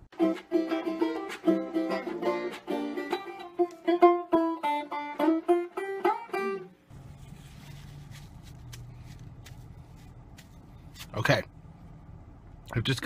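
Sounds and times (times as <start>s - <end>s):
plucked string music: 0.0s - 7.3s
low hum inside car: 6.9s - 13.0s.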